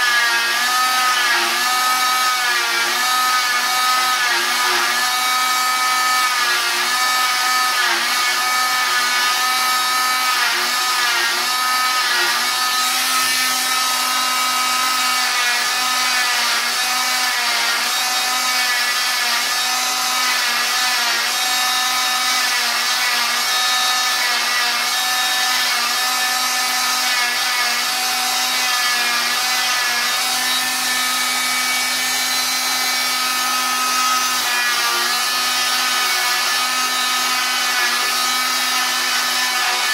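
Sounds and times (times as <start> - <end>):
oscillating saw whining: 0.0 - 39.9.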